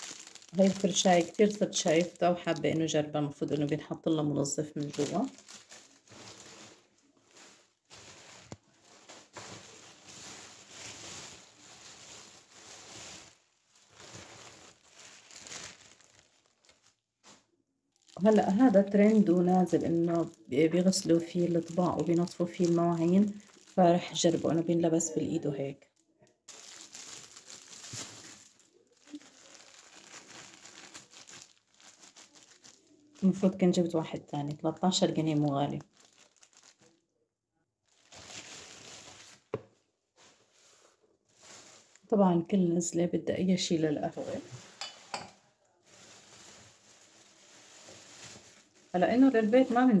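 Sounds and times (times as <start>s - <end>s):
plastic bag rustling: 0.0s - 25.3s, 26.4s - 37.0s, 37.9s - 42.2s, 43.6s - 50.0s.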